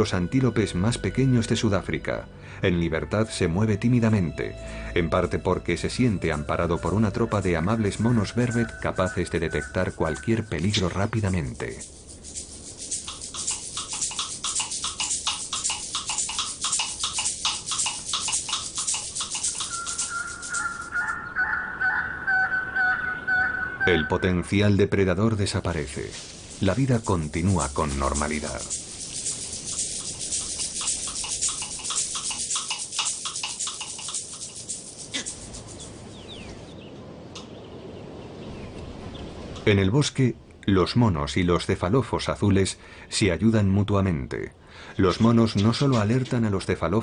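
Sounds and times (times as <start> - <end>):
animal clicking call: 7.4 - 24.2, 26.6 - 36.1
high-pitched animal call pulses: 13.0 - 24.2
faint high chirps: 19.3 - 24.3.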